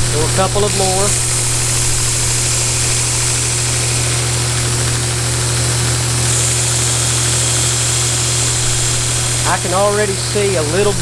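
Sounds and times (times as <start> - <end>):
belt sander motor hum: 0.0 - 11.0
blade grinding hiss: 0.0 - 11.0.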